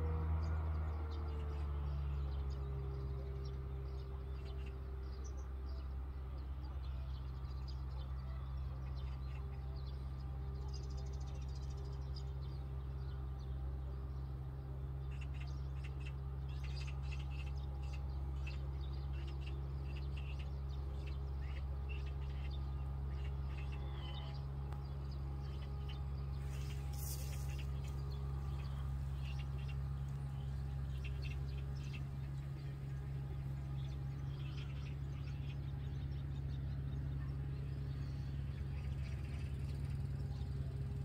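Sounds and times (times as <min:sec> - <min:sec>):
steady low hum: 0:00.0 - 0:41.0
high chirping animal calls: 0:15.1 - 0:40.0.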